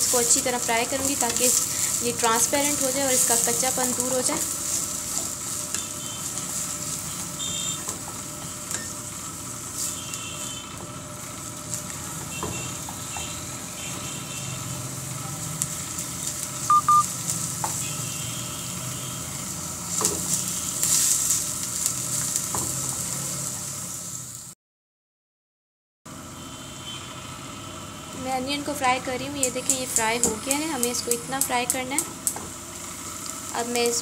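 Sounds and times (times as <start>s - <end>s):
onions sizzling in hot fat: 0.0s - 24.6s, 26.5s - 34.0s
short loud beeps: 16.7s - 17.1s.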